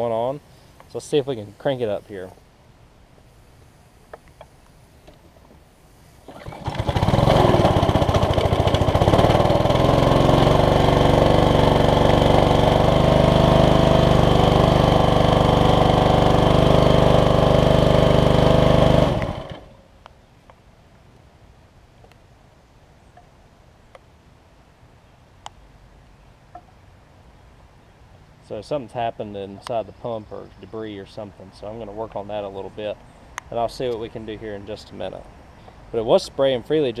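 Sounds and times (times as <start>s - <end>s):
pressure washer engine running: 6.3s - 19.7s.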